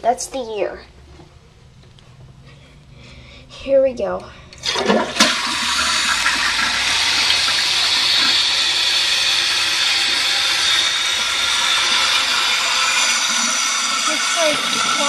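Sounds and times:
fill valve running: 0:04.5 - 0:15.0
toilet tank water rushing: 0:04.6 - 0:15.0.

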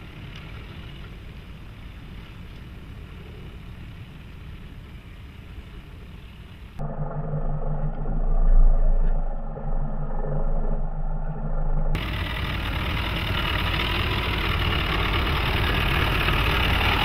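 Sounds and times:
deep engine drone with low hum: 0:00.0 - 0:17.0
pickup diesel engine running: 0:11.9 - 0:17.0.

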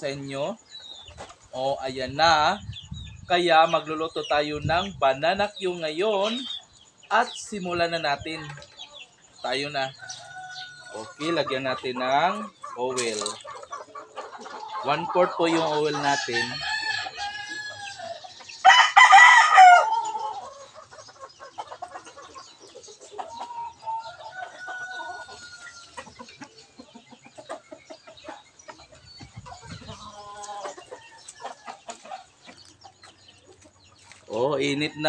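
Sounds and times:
chickens clucking: 0:00.0 - 0:35.0
rooster crowing: 0:10.0 - 0:11.4, 0:15.9 - 0:20.6.

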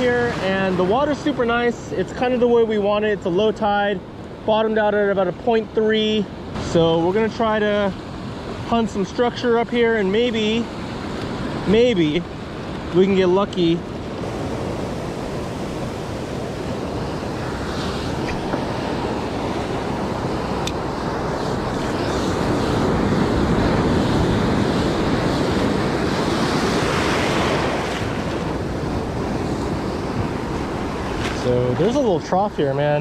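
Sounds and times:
ocean surf rushing: 0:00.0 - 0:33.0
wind buffeting microphone: 0:13.8 - 0:32.7.

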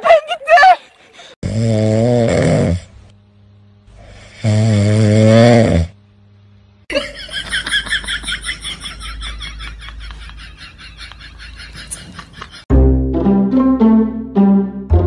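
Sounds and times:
dog snoring loudly: 0:01.4 - 0:02.9, 0:04.0 - 0:06.0.

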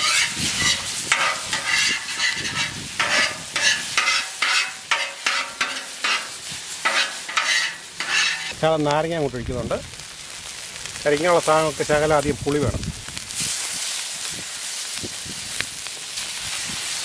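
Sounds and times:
metal spatula scraping griddle: 0:00.0 - 0:08.7
food sizzling on griddle: 0:00.0 - 0:17.0.

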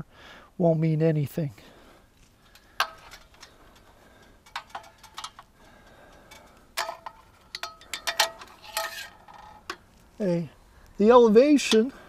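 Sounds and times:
metal parts clinking: 0:02.5 - 0:09.9.

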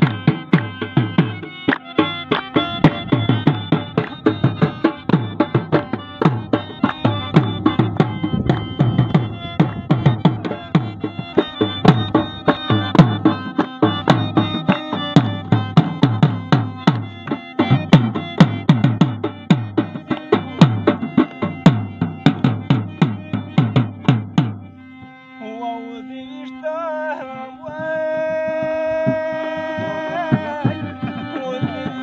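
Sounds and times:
barrel drum: 0:00.0 - 0:24.6
man singing: 0:25.4 - 0:32.0.

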